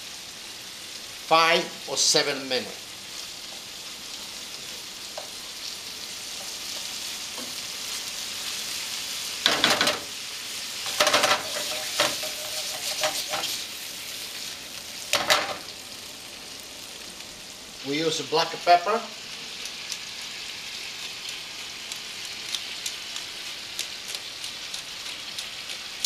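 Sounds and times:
seafood sizzling in a frying pan: 0:00.0 - 0:26.0
wooden spoon scraping a pan: 0:10.8 - 0:14.6.

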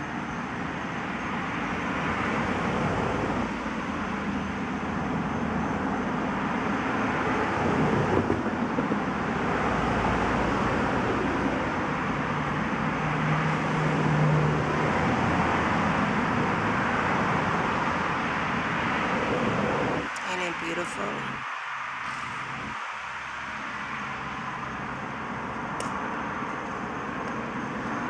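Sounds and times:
distant road traffic: 0:00.0 - 0:28.0.

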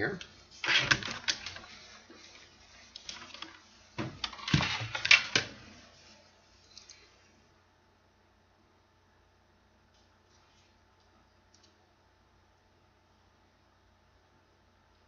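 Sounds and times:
folded paper rustling and clicking: 0:00.6 - 0:05.6.

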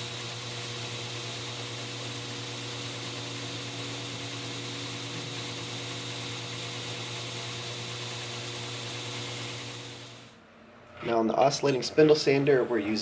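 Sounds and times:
belt grinder motor hum: 0:00.0 - 0:10.4.

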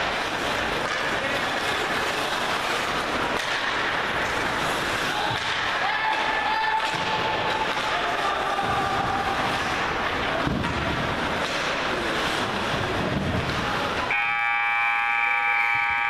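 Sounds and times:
skates on ice: 0:00.0 - 0:14.1
rink horn: 0:14.1 - 0:16.0.

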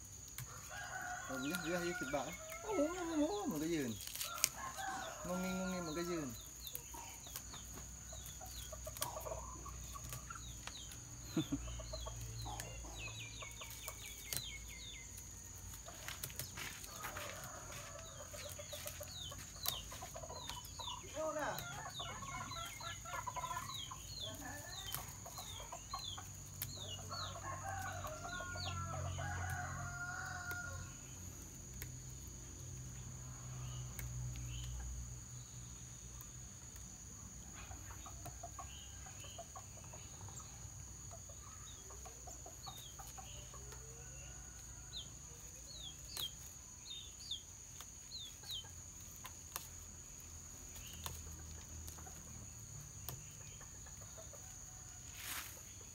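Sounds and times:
chickens clucking: 0:00.2 - 0:30.6, 0:36.1 - 0:44.6, 0:50.7 - 0:55.9
rooster crowing: 0:00.5 - 0:03.5, 0:04.2 - 0:06.2, 0:27.3 - 0:31.0.

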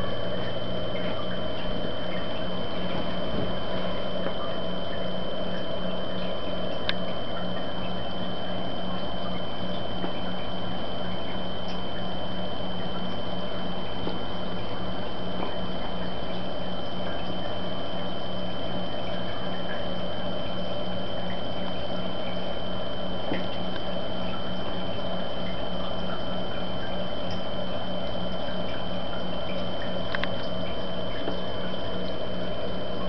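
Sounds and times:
constant high whine: 0:00.0 - 0:33.0
low hum: 0:00.0 - 0:33.0
trickling water: 0:00.0 - 0:33.0
small ticks: 0:23.2 - 0:32.2.

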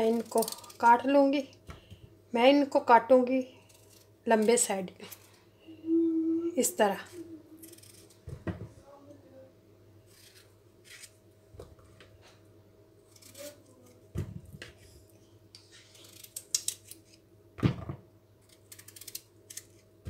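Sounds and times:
knife slicing raw potatoes: 0:10.1 - 0:11.2.

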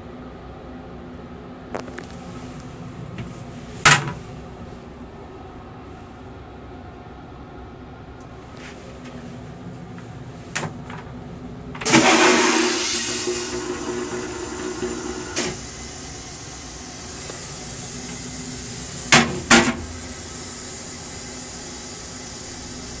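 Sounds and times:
train running noise: 0:08.2 - 0:23.0
toilet flushing: 0:11.8 - 0:23.0.

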